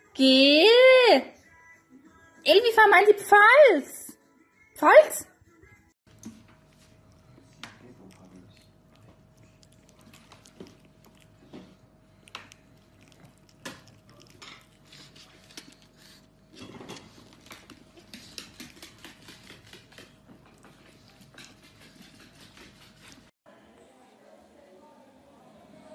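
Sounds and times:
puppy claws tapping on wooden floor: 16.9s - 23.2s.

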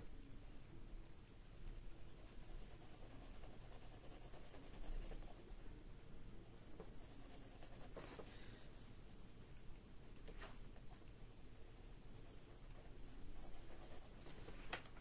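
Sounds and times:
pencil scratching on paper: 2.0s - 5.7s, 6.5s - 8.3s, 9.4s - 14.3s.

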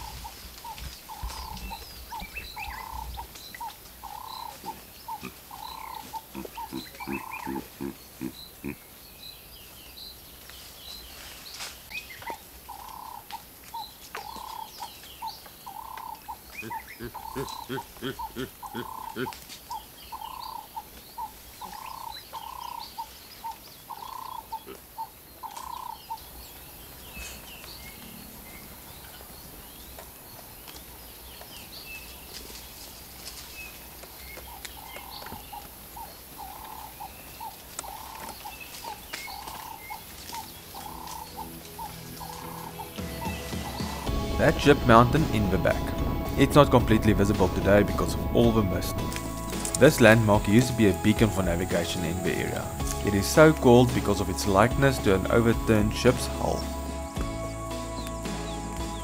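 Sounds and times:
piping animal call: 0.0s - 8.8s, 15.7s - 26.2s, 34.5s - 59.0s
low croaking pulses: 0.0s - 8.9s, 15.7s - 19.4s, 39.4s - 57.7s.

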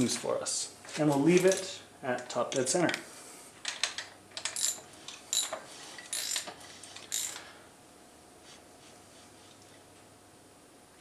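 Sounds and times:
ratchet wrench clicking: 3.8s - 7.4s.

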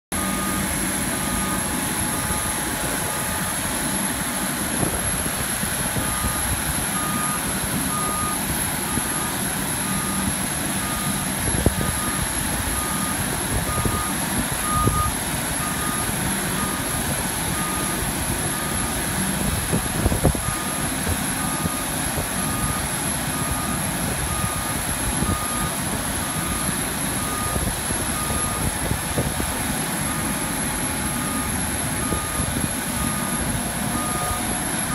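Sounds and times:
high warning beeps: 0.2s - 4.9s, 6.0s - 19.0s, 20.4s - 28.8s, 30.1s - 34.9s.

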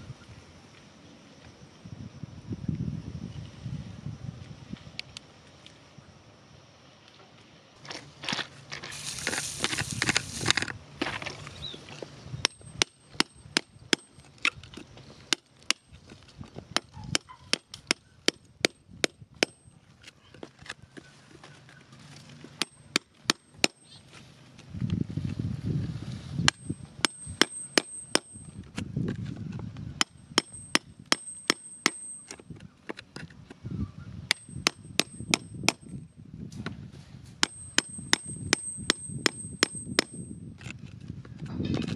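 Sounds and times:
scraping and crumbling soil: 7.8s - 13.3s, 19.9s - 27.8s
hand tool tapping stony soil: 8.8s - 11.5s, 12.4s - 19.6s, 22.3s - 24.1s, 26.4s - 33.6s, 37.4s - 40.8s.

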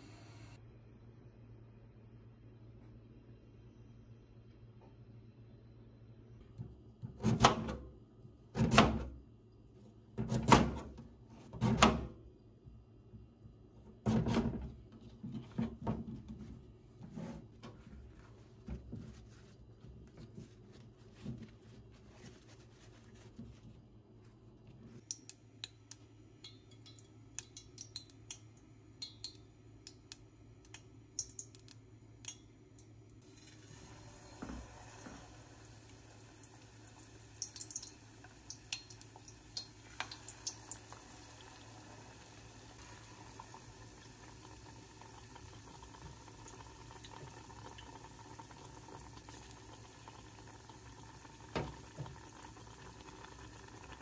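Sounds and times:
oil ticking and popping in saucepan: 25.0s - 33.6s, 34.3s - 54.0s
batter sizzling in oil: 33.2s - 54.0s.

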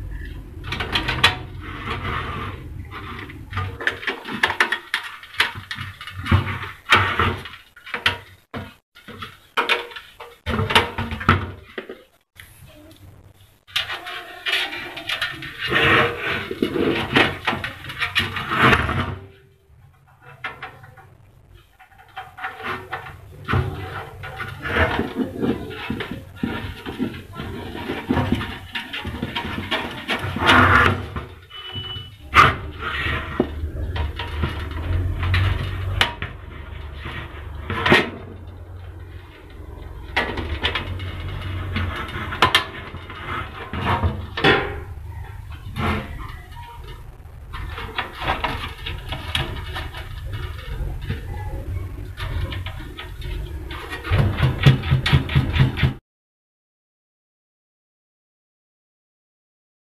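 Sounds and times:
low steady hum: 0.0s - 6.6s
clicks taps and scraping on metal: 0.0s - 12.6s, 13.2s - 56.0s.

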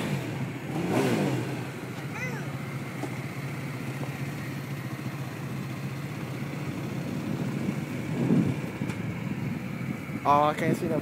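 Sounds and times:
pickup truck engine idling: 1.6s - 11.0s.

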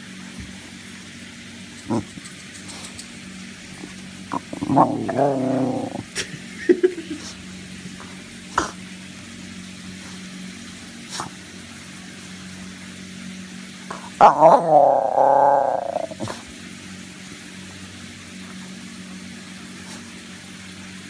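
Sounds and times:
dog growl-like moan: 1.9s - 2.1s, 4.3s - 6.2s, 13.9s - 16.4s.

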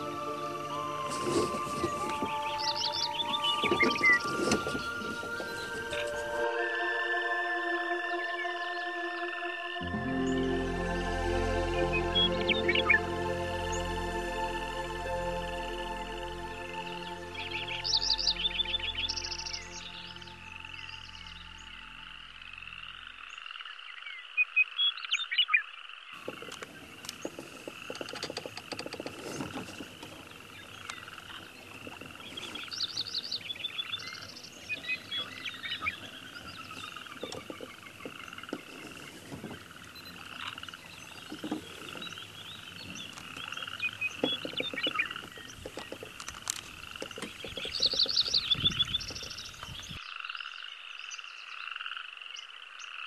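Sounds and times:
bird chirps: 0.0s - 6.4s, 16.6s - 51.7s
frogs croaking: 0.0s - 10.8s, 13.7s - 53.0s.

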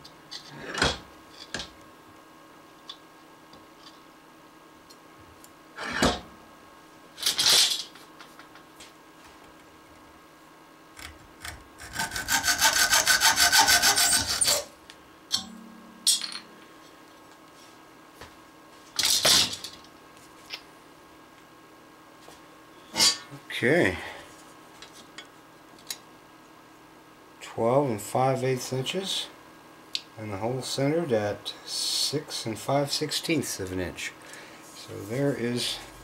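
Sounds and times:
hacksaw cutting metal rod: 11.5s - 14.7s.

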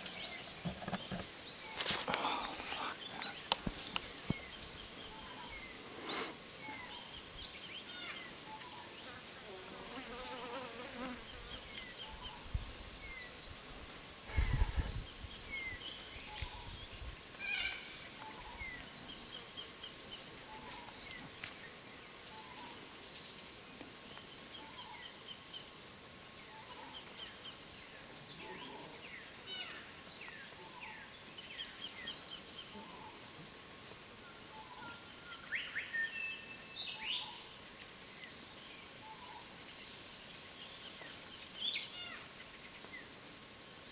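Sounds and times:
small birds chirping: 0.0s - 33.3s
faint insect hum: 0.0s - 43.9s.

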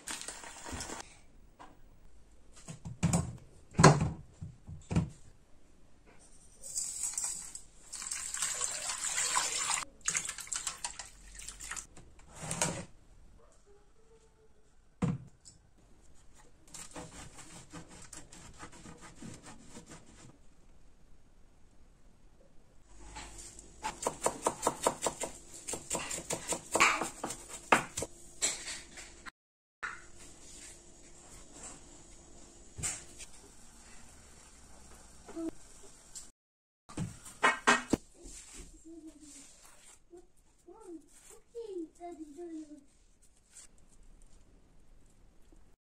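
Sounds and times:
water pouring into a pot: 7.0s - 11.9s
knife chopping on wooden board: 23.8s - 28.1s.

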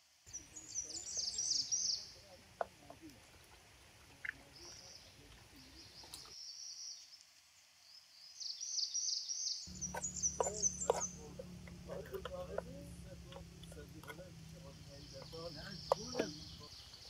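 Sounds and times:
small birds chirping: 0.3s - 3.2s, 4.1s - 17.0s.

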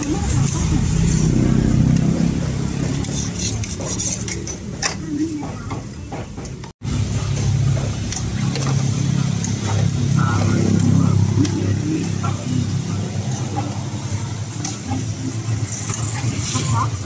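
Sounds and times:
vehicle engine droning: 0.0s - 3.4s, 6.8s - 17.0s.

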